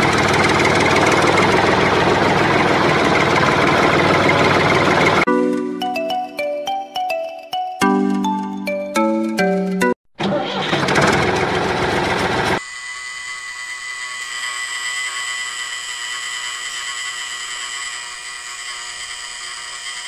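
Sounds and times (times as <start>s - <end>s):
small electric gear motors whining: 12.5s - 20.0s.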